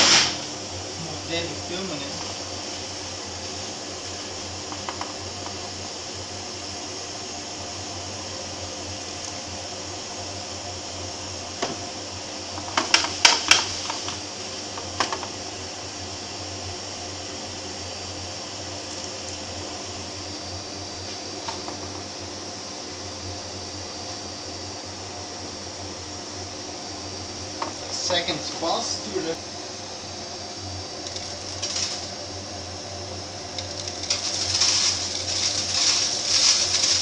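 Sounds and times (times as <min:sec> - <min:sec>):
vacuum whirring: 0:00.0 - 0:07.3, 0:26.8 - 0:37.0
beans rattling in metal tray: 0:31.1 - 0:32.2, 0:33.5 - 0:37.0.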